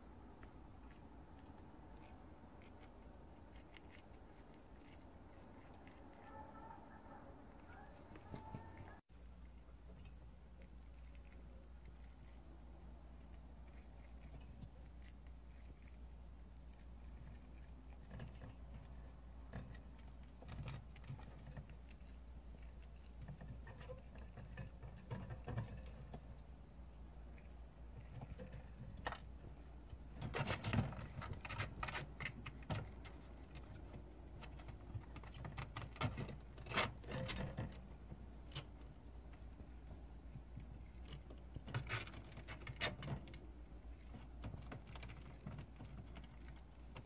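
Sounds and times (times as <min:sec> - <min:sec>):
animal chewing grass: 0:00.0 - 0:25.5.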